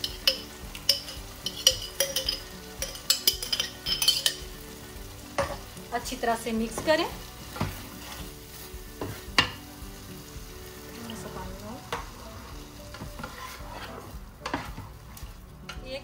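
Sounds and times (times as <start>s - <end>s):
steady sizzle: 0.0s - 16.0s
spatula stirring sauce: 11.9s - 15.3s.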